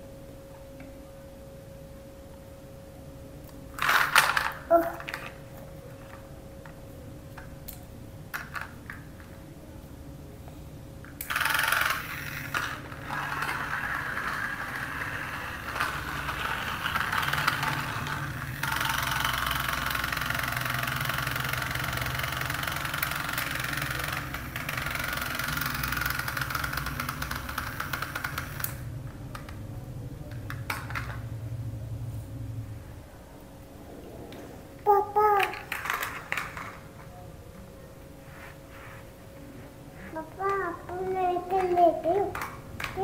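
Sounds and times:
toy motor whirring rattle: 0:03.8 - 0:05.3, 0:11.2 - 0:28.8.

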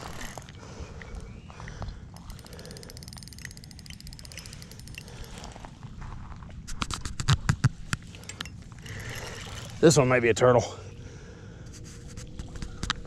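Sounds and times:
fishing reel clicking: 0:02.2 - 0:05.4.

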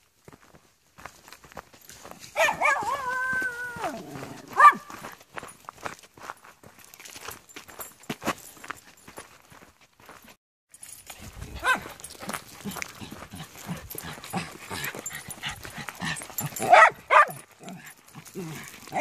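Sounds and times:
paws scuffling on dirt: 0:00.0 - 0:19.0
dog yipping: 0:02.4 - 0:04.0, 0:04.6 - 0:04.9, 0:11.6 - 0:11.9, 0:16.6 - 0:17.8.

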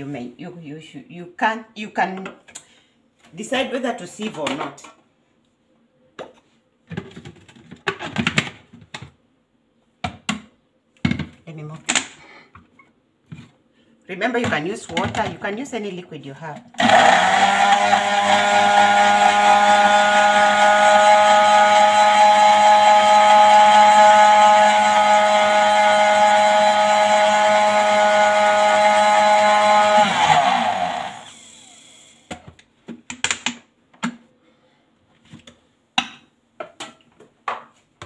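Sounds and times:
blender motor winding down: 0:16.8 - 0:32.3
blender running: 0:16.8 - 0:32.3.

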